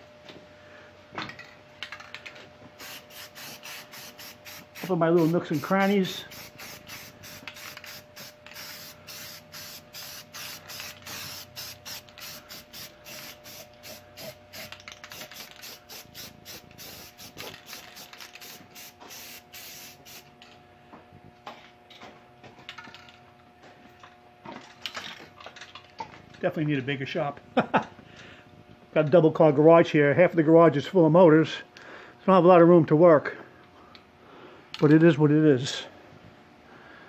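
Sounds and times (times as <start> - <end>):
spray paint can hissing: 2.8 - 20.3.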